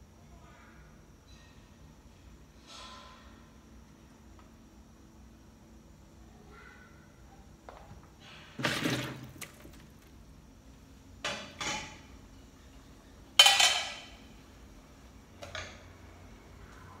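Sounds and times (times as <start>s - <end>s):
metal cookware clanking: 13.4s - 14.2s.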